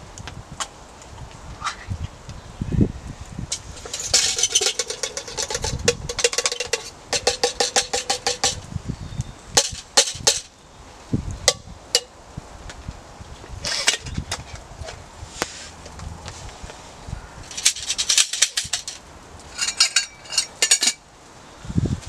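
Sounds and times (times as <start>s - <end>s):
metal mug clinking and rattling: 3.8s - 8.6s, 17.5s - 21.0s.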